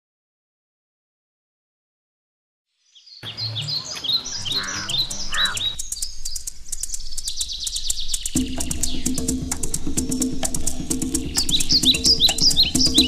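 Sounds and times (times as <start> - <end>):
birds chirping: 3.0 - 13.0.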